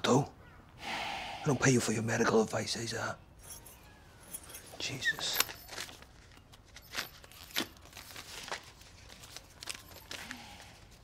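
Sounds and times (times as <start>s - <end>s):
banknotes rustling and snapping: 5.2s - 11.0s.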